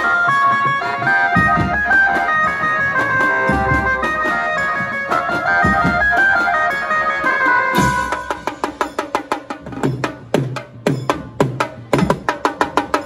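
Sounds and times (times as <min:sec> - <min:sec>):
band playing through loudspeakers: 0:00.0 - 0:10.1
heavy drum strikes: 0:00.0 - 0:13.0.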